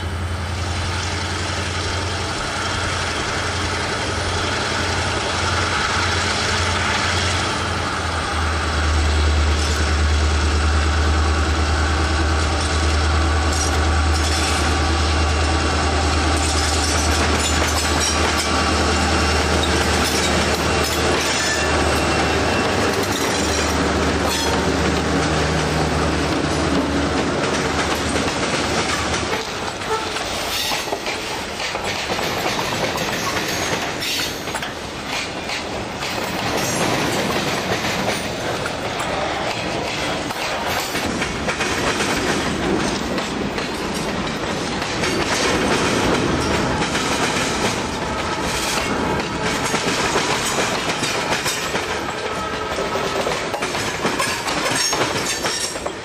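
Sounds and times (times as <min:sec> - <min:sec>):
diesel locomotive engine droning: 0:00.0 - 0:56.0
train wheels clattering over rail joints: 0:12.3 - 0:56.0.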